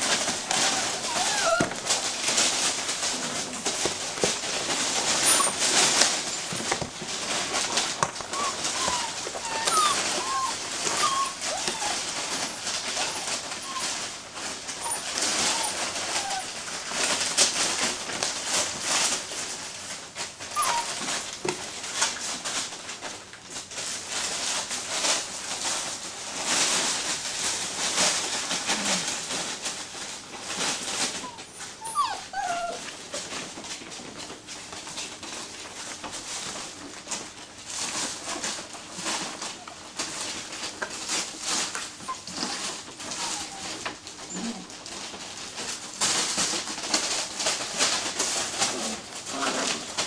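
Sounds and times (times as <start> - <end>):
puppies whimpering and yipping: 0.0 - 6.7, 7.5 - 17.1, 20.5 - 21.2, 30.8 - 32.9, 41.9 - 44.8
newspaper and tarp rustling: 0.0 - 50.0.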